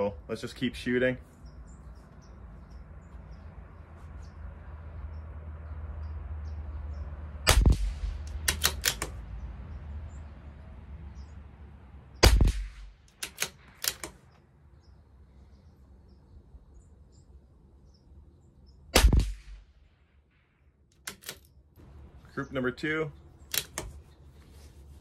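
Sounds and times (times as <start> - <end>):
rifle shots: 7.5 - 9.2, 12.2 - 14.1, 18.9 - 19.7
rifle bolt clicks: 8.1 - 9.2, 13.1 - 14.2, 20.9 - 21.5, 23.5 - 24.0.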